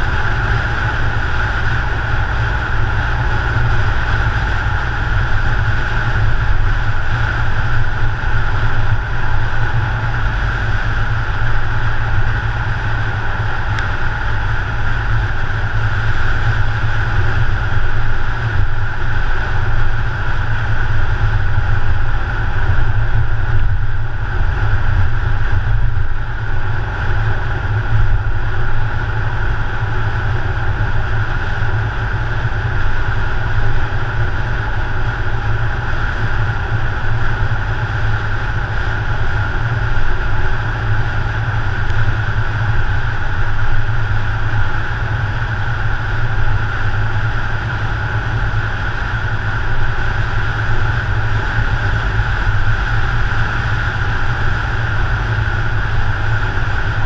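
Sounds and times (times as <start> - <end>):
car engine: 0.0 - 57.0
wind noise: 0.0 - 57.0.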